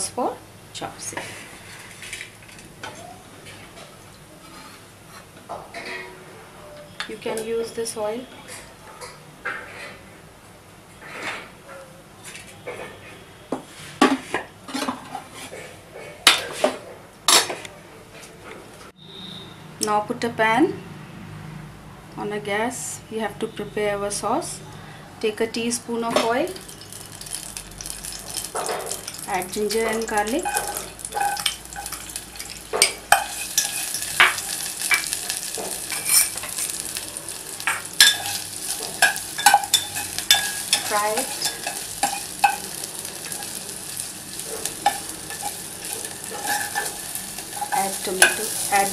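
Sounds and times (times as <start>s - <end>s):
garlic sizzling in oil: 26.2s - 48.9s
metal cookware clattering: 26.2s - 48.9s
spoon scraping pot: 28.5s - 36.8s, 37.6s - 43.6s, 44.4s - 48.9s.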